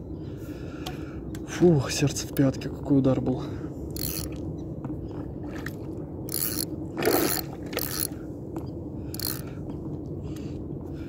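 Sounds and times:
fishing reel cranking: 4.0s - 4.4s, 6.3s - 8.2s, 9.2s - 9.4s.

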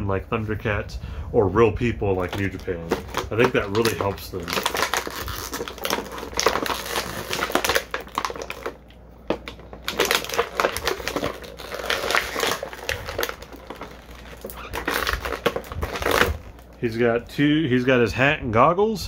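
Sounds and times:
plastic packaging crinkling: 1.8s - 17.0s.

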